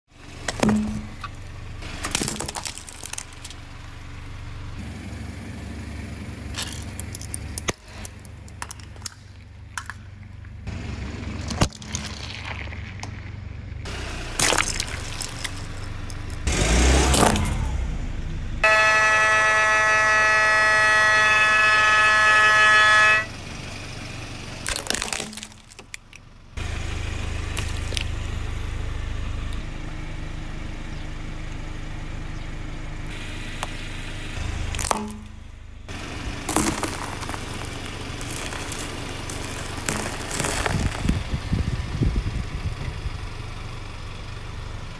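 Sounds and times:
low engine rumble: 0.1 - 44.9
tyre crushing small objects: 0.3 - 3.6, 6.5 - 10.6, 11.3 - 13.6, 14.4 - 16.5, 17.1 - 17.7, 24.6 - 26.2, 27.5 - 28.3, 34.7 - 35.5, 36.2 - 41.2
loud steady squeal: 18.6 - 23.4.

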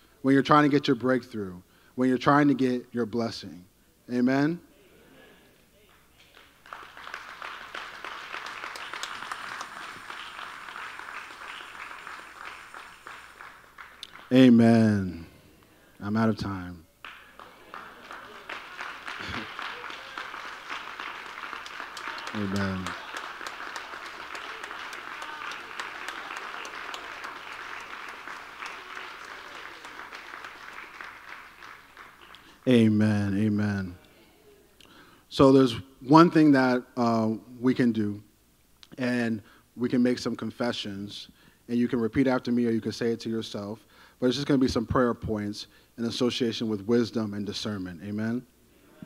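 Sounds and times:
crowd applauding: 5.9 - 14.6, 17.0 - 32.7.

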